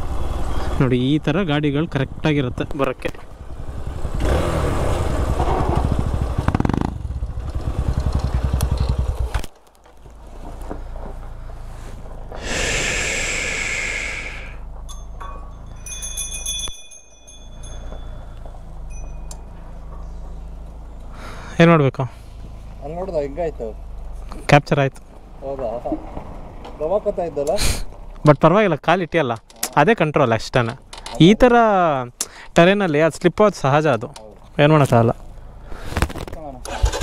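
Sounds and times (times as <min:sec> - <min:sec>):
motorcycle engine running: 0:00.0 - 0:12.4, 0:14.6 - 0:27.4
hiss: 0:12.4 - 0:14.6
high ringing tones: 0:14.8 - 0:20.2.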